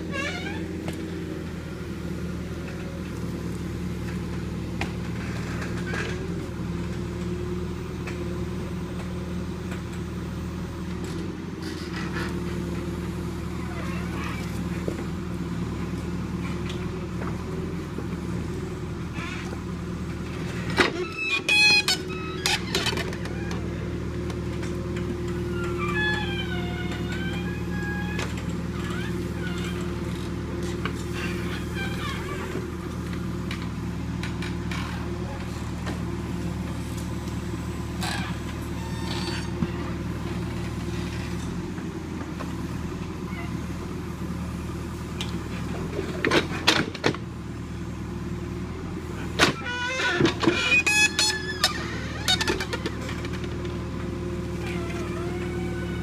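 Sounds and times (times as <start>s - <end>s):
diesel engine running: 0.0s - 56.0s
loud clanks and scrapes: 37.9s - 41.6s.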